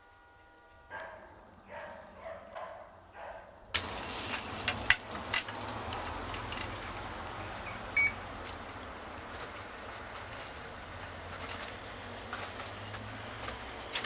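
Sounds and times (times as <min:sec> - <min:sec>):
steady background noise: 0:00.0 - 0:14.0
small metal objects jingling: 0:03.8 - 0:07.2.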